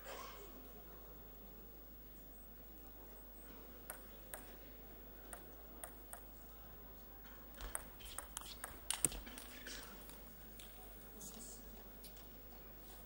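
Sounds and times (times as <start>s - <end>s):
table tennis rally: 3.7s - 10.8s
table tennis ball bouncing: 3.8s - 4.6s, 5.2s - 6.4s, 7.6s - 9.5s.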